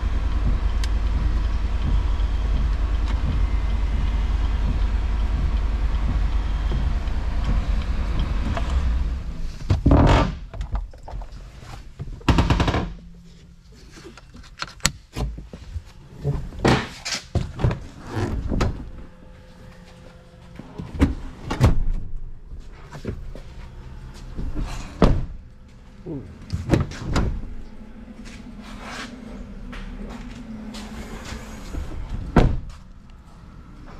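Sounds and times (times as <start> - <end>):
car doors and interior thunking: 0.0 - 13.6, 14.3 - 33.1
engine rumble inside cab: 0.0 - 33.9.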